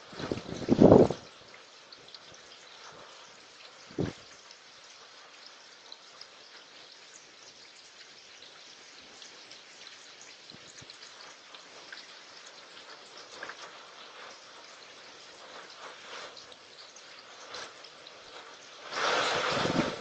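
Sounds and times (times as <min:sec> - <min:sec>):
heavy rain falling: 0:00.0 - 0:01.5, 0:02.1 - 0:04.5, 0:10.5 - 0:20.0
raindrops ticking on microphone: 0:00.0 - 0:20.0.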